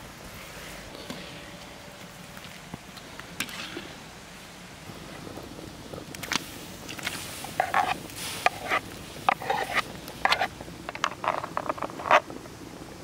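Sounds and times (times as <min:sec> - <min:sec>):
metal spoon scraping wooden tray: 0:07.4 - 0:12.2.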